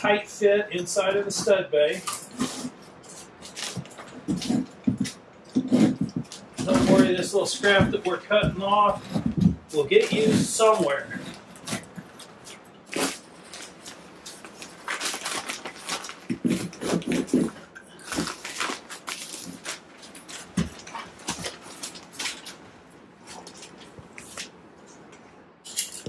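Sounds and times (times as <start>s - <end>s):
knife cutting insulation: 2.0s - 22.4s
fiberglass tearing: 8.9s - 22.6s
paper crinkling: 8.9s - 25.0s.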